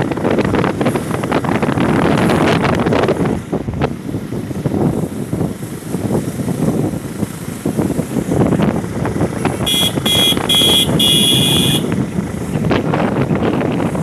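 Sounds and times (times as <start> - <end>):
wind buffeting microphone: 0.0 - 14.0
vehicle horn beeping: 9.6 - 12.0.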